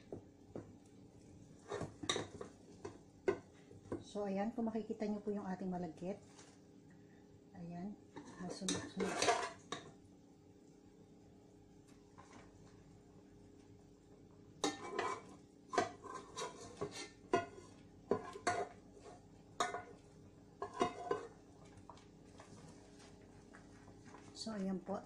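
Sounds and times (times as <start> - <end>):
metal spatula scraping a frying pan: 8.2 - 9.8, 14.6 - 19.9, 20.6 - 21.4.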